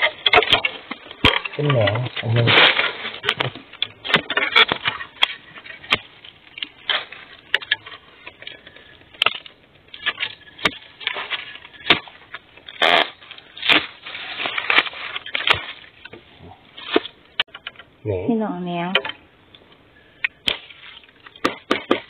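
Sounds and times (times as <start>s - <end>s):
sharp snaps and knocks: 0.0s - 17.9s, 18.9s - 22.0s
dry leaf litter crunching: 12.8s - 16.0s.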